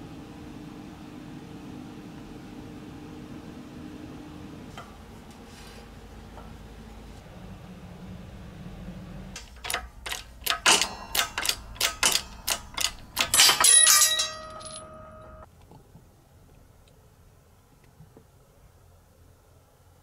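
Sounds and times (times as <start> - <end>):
hammer striking steel drift: 9.4 - 15.4
metallic ringing: 9.4 - 15.4.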